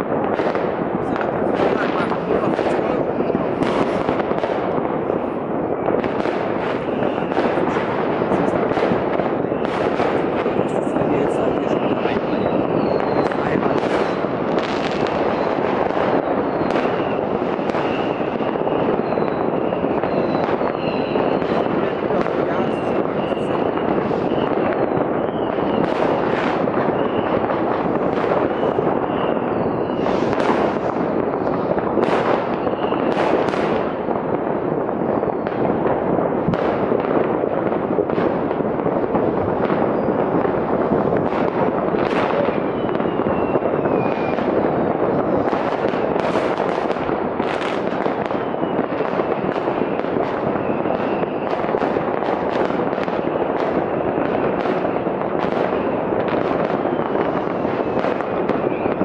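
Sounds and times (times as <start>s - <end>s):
fireworks crackling: 0.0s - 59.0s
sharp firework bangs: 0.0s - 59.0s
rocket whistle: 11.7s - 14.2s, 14.9s - 21.8s, 28.3s - 31.0s, 32.5s - 33.2s, 42.2s - 44.5s.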